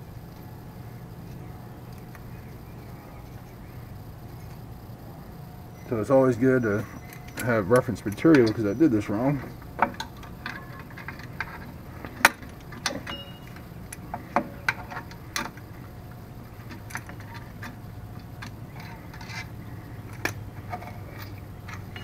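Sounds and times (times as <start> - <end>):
steady low hum: 0.0 - 22.0
metal tool clicking on brake springs: 16.8 - 22.0.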